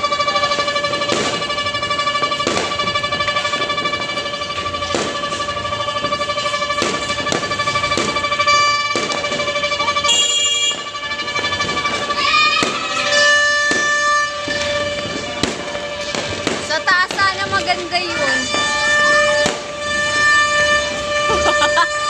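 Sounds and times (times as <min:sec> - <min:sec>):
fireworks bangs and pops: 0:00.0 - 0:22.0
warbling horn-like tone: 0:17.6 - 0:22.0.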